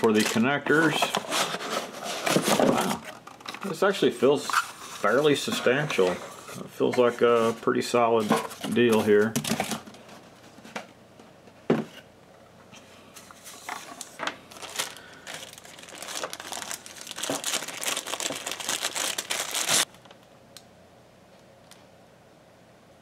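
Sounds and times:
plastic bag crinkling: 0:13.9 - 0:20.2.

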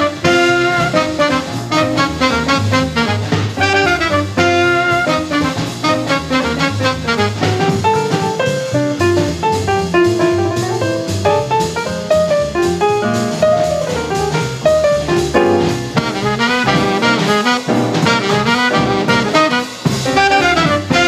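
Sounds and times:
horn playing quick line: 0:00.0 - 0:08.4, 0:13.8 - 0:21.0
fast bebop jazz band: 0:00.0 - 0:21.0.

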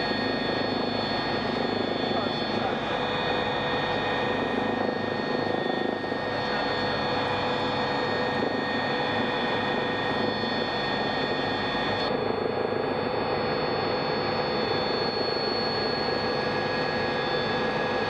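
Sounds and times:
helicopter rotor and engine: 0:00.0 - 0:18.0
high whine: 0:00.0 - 0:18.0.

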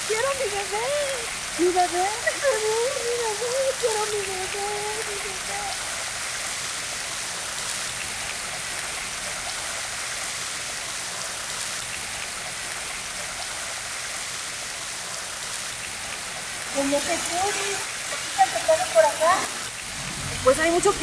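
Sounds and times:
water splashing into fountain basin: 0:00.0 - 0:21.0.

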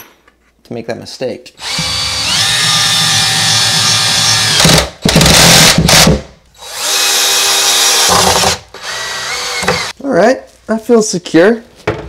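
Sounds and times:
cordless drill driving screws: 0:01.6 - 0:09.9.

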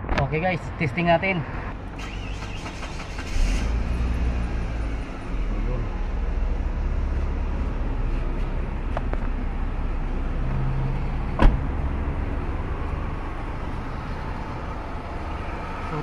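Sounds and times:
car engine idling: 0:01.8 - 0:16.0
car door shutting: 0:11.4 - 0:11.6.

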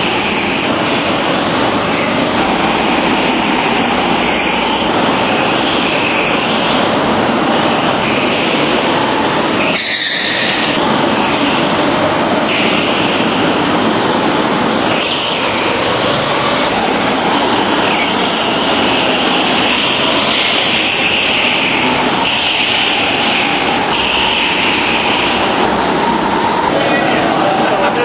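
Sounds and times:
kart engines running hard: 0:00.0 - 0:28.0
tyres squealing: 0:01.6 - 0:08.8.

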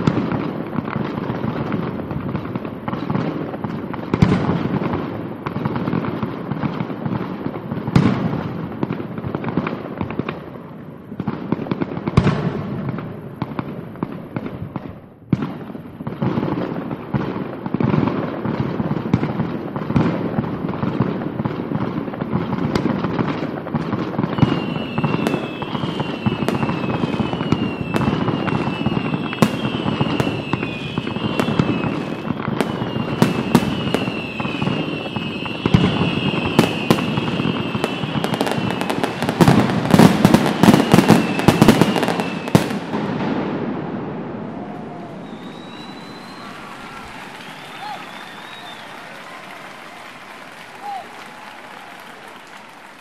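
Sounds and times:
fireworks bangs: 0:00.0 - 0:53.0
fireworks crackling: 0:00.0 - 0:53.0
falling whistles: 0:24.3 - 0:42.9, 0:44.4 - 0:53.0.

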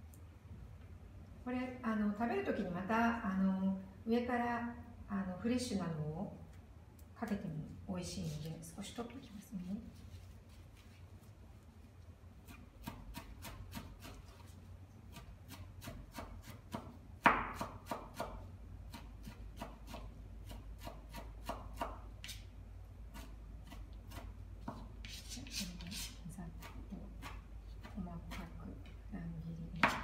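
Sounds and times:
knife chopping on wooden board: 0:12.5 - 0:14.2, 0:15.1 - 0:22.4, 0:29.8 - 0:30.0.

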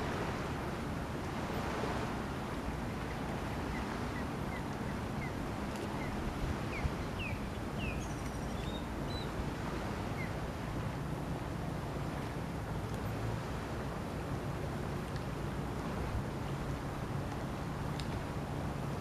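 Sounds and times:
wind rumble on microphone: 0:00.0 - 0:19.0
bird chirping: 0:06.7 - 0:09.3.

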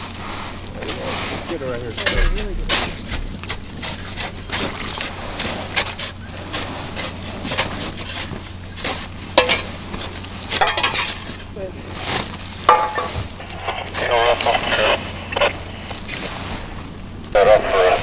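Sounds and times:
shovels scraping loose dirt: 0:00.9 - 0:11.4.

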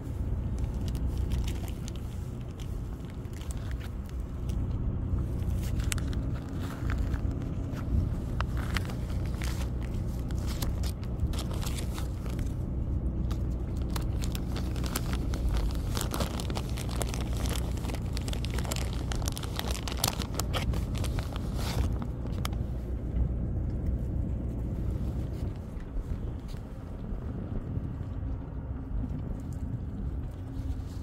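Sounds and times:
snack packet crinkling: 0:00.4 - 0:12.6, 0:13.2 - 0:22.6.

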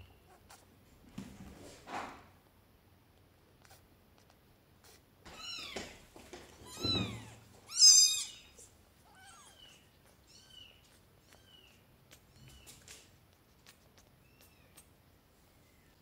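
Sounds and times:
kittens meowing: 0:05.3 - 0:06.0, 0:06.6 - 0:12.8.

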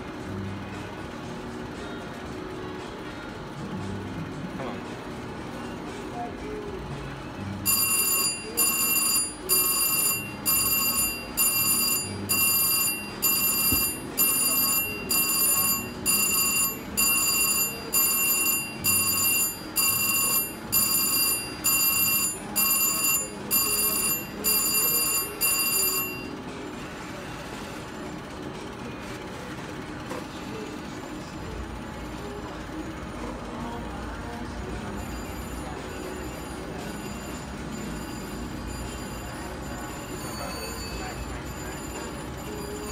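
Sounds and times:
slot machine electronic ringing: 0:07.6 - 0:26.5, 0:34.7 - 0:42.9.

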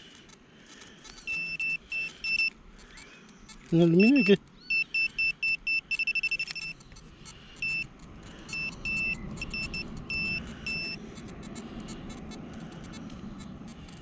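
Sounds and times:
metal detector high-pitched beeps: 0:01.2 - 0:02.6, 0:03.7 - 0:12.0.

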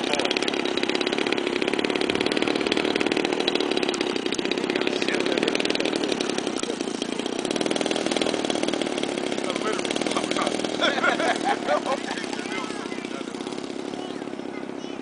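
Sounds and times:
model airplane engine running: 0:00.0 - 0:15.0.

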